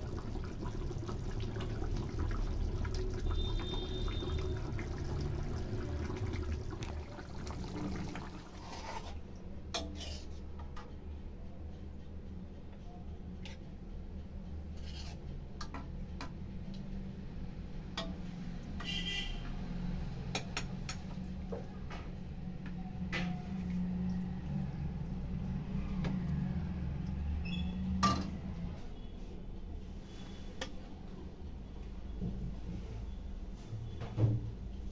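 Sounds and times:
metal spoon clinking and scraping: 14.8 - 15.3.

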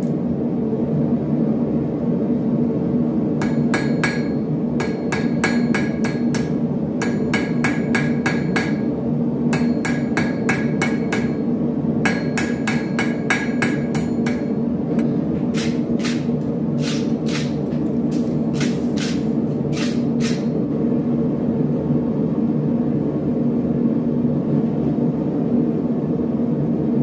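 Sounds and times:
steady low hum: 0.0 - 27.0
hammer striking steel on anvil: 3.4 - 8.9, 9.5 - 14.7, 15.5 - 17.6.

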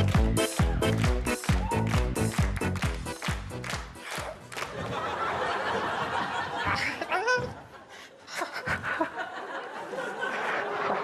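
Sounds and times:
audience laughing: 4.6 - 11.0.

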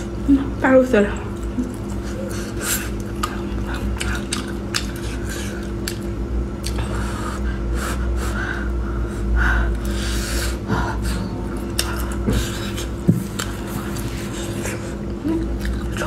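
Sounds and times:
person chewing sausage: 1.2 - 16.0.

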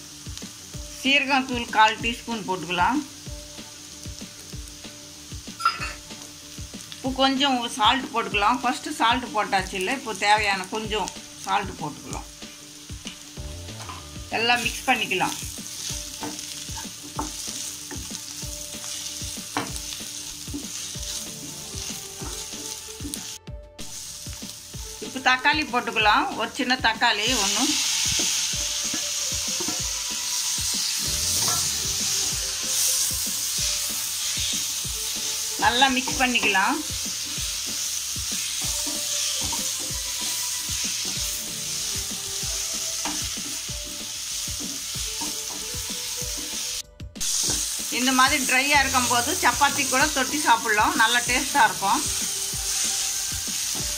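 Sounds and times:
vegetables sizzling in oil: 0.0 - 53.9
spatula scraping and knocking pan: 31.3 - 32.4.

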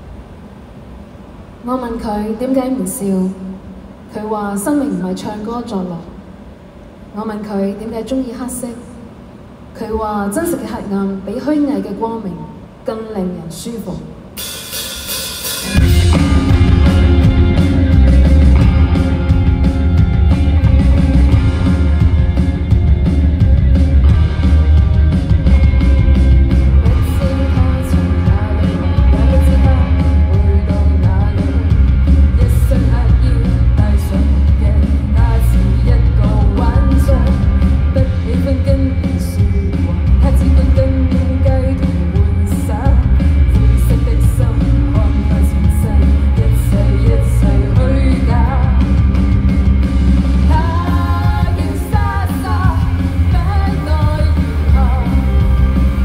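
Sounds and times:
rock band playing: 14.4 - 56.0
woman singing: 26.8 - 49.1, 50.5 - 56.0.

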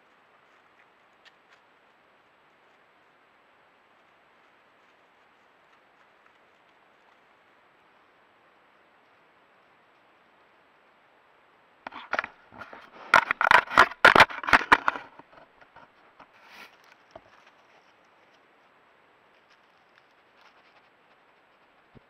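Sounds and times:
bear knocking and scratching camera: 11.9 - 16.3.

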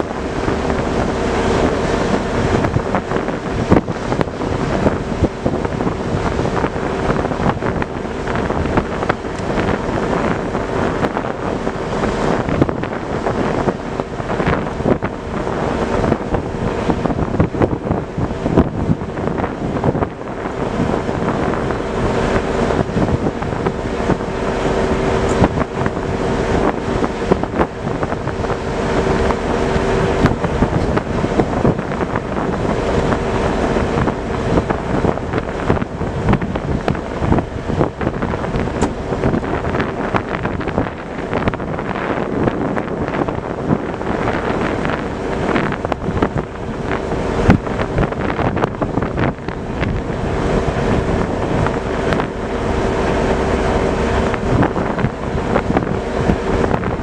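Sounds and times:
diesel engine hum: 0.0 - 57.0
wind buffeting microphone: 0.0 - 57.0.

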